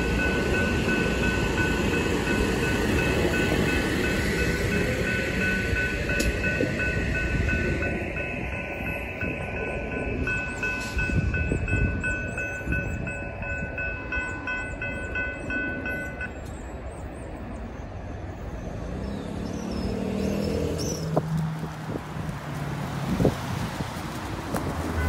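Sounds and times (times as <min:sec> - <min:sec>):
railroad crossing bell ringing: 0:00.0 - 0:17.1
low train rumble: 0:00.0 - 0:25.0
car engine pulling away: 0:18.9 - 0:23.7.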